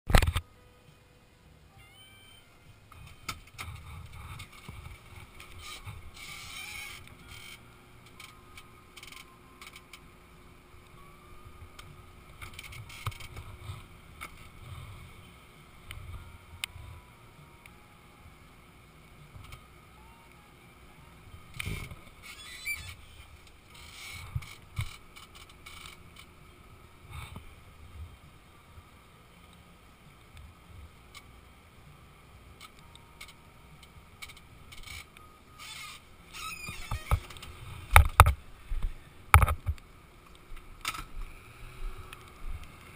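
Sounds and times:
camera rumbling and rustling: 0.1s - 0.4s, 2.9s - 17.1s, 19.0s - 19.8s, 21.3s - 29.5s, 32.5s - 42.9s.

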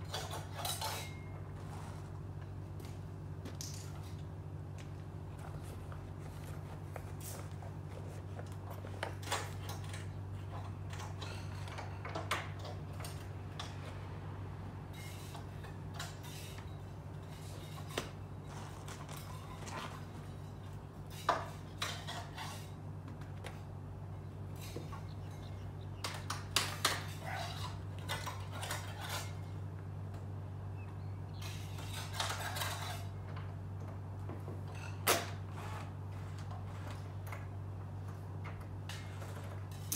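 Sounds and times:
hand tools clinking on metal: 0.0s - 1.4s
steady low hum: 0.0s - 39.9s.

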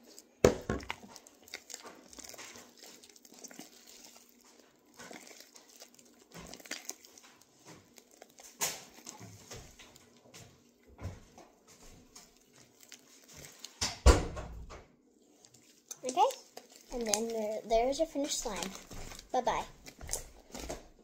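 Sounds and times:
slime squishing and popping: 0.0s - 10.2s, 15.6s - 21.0s.

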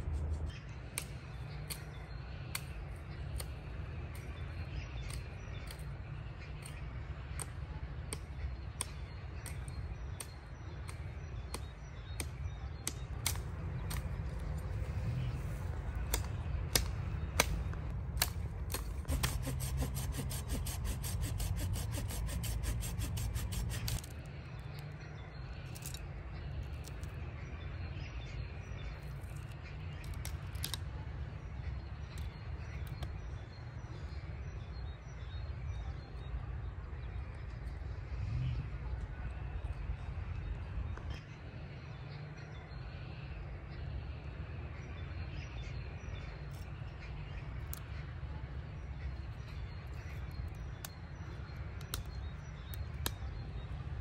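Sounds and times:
steady low rumble: 0.0s - 54.0s
branches cracking and snapping: 11.6s - 24.9s, 29.1s - 30.8s
rapid rasping strokes: 19.0s - 24.1s.

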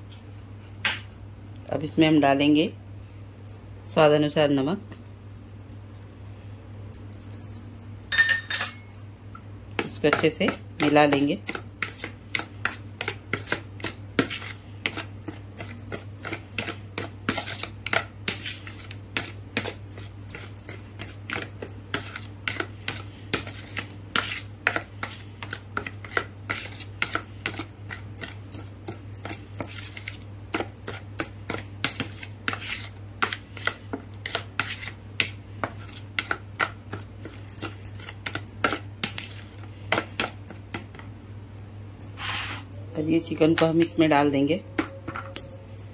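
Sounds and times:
spoon scraping a bowl: 10.2s - 40.6s, 42.0s - 45.9s.

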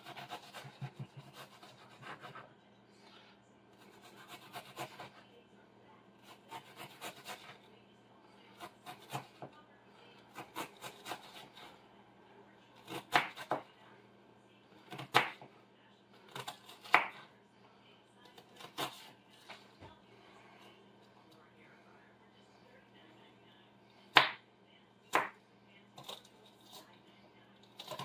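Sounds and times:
knife chopping on cutting board: 0.0s - 2.5s, 12.9s - 13.6s, 14.9s - 15.5s, 16.3s - 17.2s, 25.1s - 25.4s.

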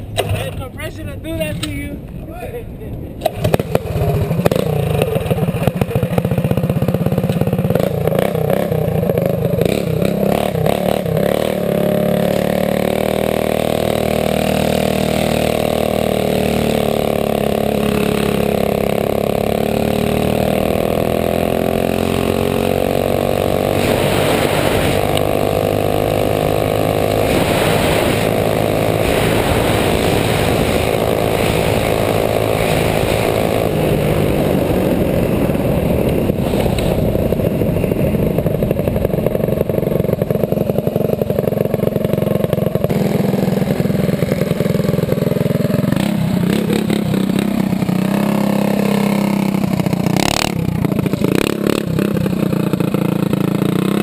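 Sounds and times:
small engine running: 3.2s - 54.0s
wind noise: 22.6s - 41.3s.

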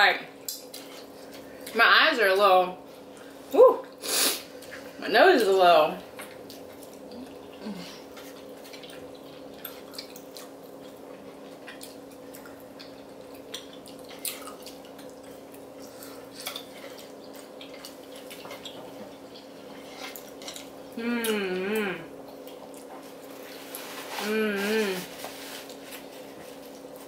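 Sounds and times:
steady low hum: 0.0s - 27.0s
wet chewing and smacking: 6.0s - 20.9s, 22.2s - 23.8s.

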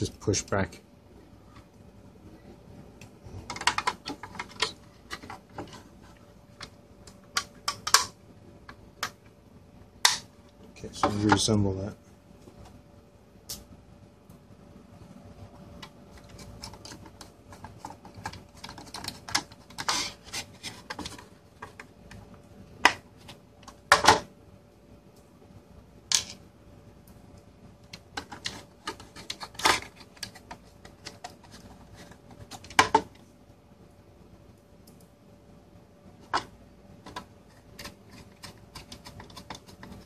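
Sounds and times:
screwdriver clicking and scraping: 37.1s - 40.0s.

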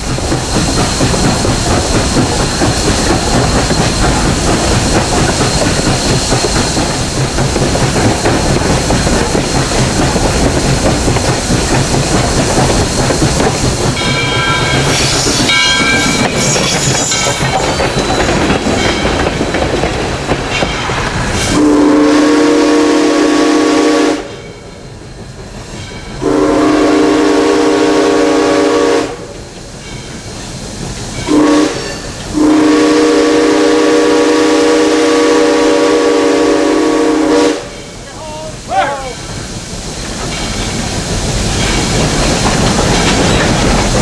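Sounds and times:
steam locomotive clatter: 0.0s - 44.0s
steam whistle blasts: 21.5s - 24.4s, 26.2s - 29.4s, 31.3s - 37.8s.

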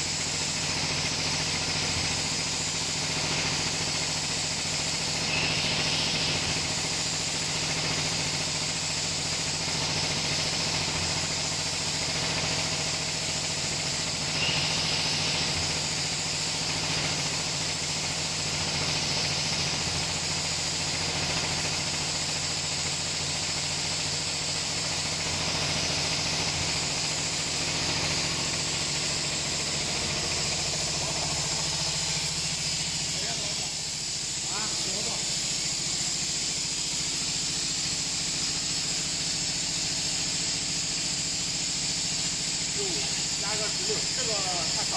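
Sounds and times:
high even hiss: 14.3s - 16.2s, 42.5s - 44.9s
machine hum: 25.2s - 37.8s.

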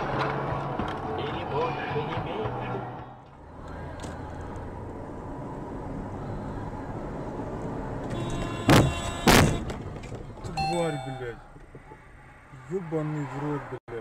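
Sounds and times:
car road and engine noise: 0.0s - 14.0s
car horn blasts: 8.1s - 9.8s, 10.6s - 11.5s.

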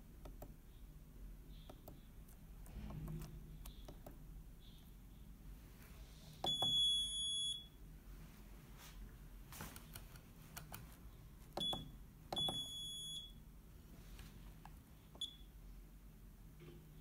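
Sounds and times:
keypad beeps: 6.4s - 7.7s, 11.6s - 13.4s, 15.2s - 15.5s.

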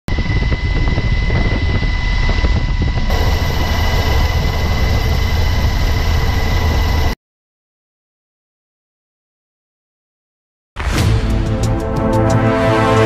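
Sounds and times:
aircraft engine roar: 0.1s - 7.2s, 11.0s - 13.0s
thin steady whine: 0.1s - 7.2s.

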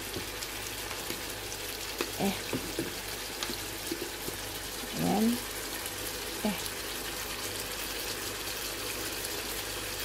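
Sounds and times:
fruit sizzling in a frying pan: 0.0s - 10.0s.

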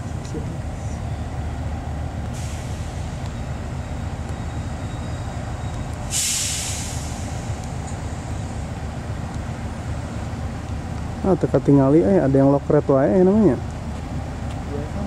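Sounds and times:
locomotive engine rumble: 0.0s - 15.0s
air brakes hissing: 2.2s - 8.6s.

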